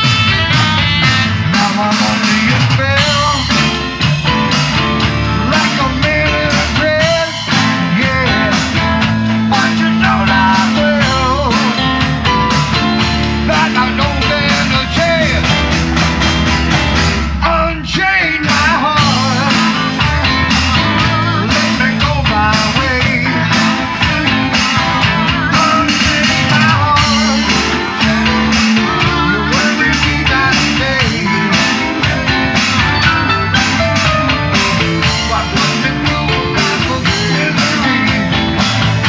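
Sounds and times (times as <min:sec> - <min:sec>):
bending melodic lead: 0:00.0 - 0:39.0
electronic drum beat: 0:00.0 - 0:39.0
keyboard chords: 0:00.0 - 0:39.0
live rock band playing: 0:00.0 - 0:39.0.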